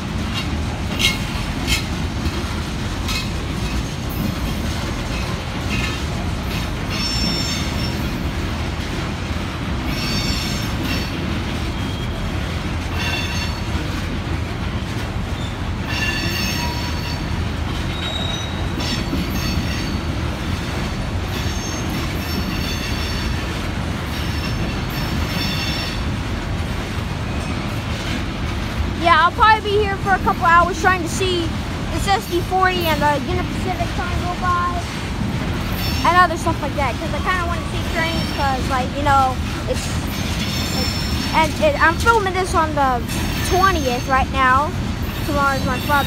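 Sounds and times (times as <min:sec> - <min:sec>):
train wheels rumbling on rail: 0:00.0 - 0:46.0
wheel squeals: 0:06.5 - 0:08.2, 0:09.9 - 0:12.2, 0:15.4 - 0:17.3, 0:17.9 - 0:20.1, 0:21.3 - 0:23.4, 0:24.1 - 0:26.0, 0:35.7 - 0:36.2, 0:39.7 - 0:41.6.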